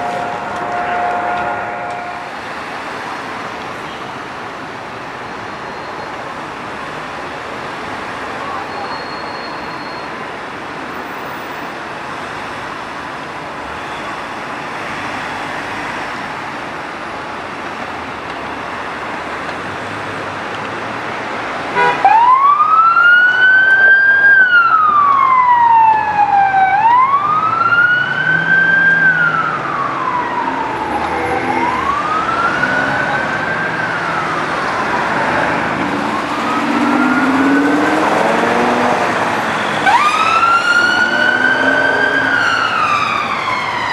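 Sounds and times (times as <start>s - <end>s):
police siren wailing: 0.0s - 3.2s, 21.8s - 43.9s
road traffic: 0.0s - 43.9s.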